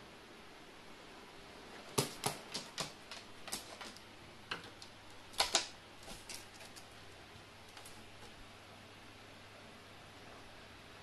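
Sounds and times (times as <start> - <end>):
faint steady hiss: 0.0 - 11.0
bird claws tapping on ledge: 1.9 - 6.9.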